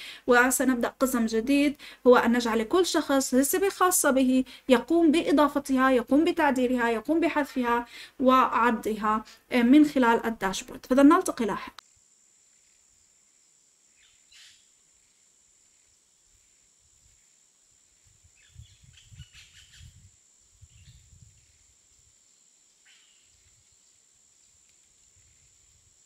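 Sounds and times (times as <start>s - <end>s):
bird chirps: 14.0s - 14.7s, 18.4s - 20.0s.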